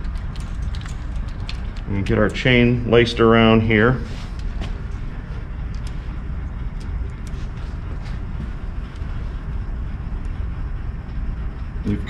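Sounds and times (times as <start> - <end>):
timing chain metallic clicks: 0.0 - 2.6
low rumble: 0.0 - 12.0.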